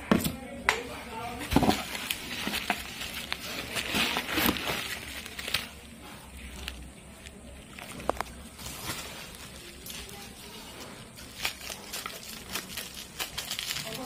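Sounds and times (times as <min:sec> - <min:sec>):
bubble wrap crinkling: 0:01.4 - 0:14.0.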